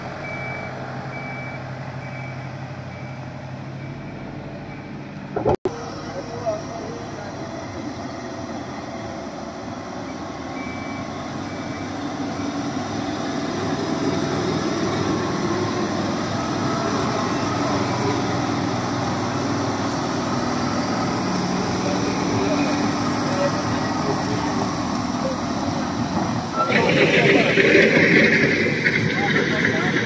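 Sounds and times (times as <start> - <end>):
truck diesel engine driving past: 0.0 - 5.1, 5.7 - 30.0.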